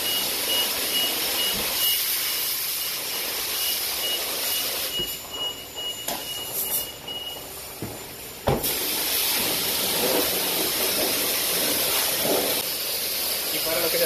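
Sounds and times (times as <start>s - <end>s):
pressure wand spraying water: 0.0s - 5.0s, 8.5s - 14.0s
high beeps: 0.0s - 7.6s.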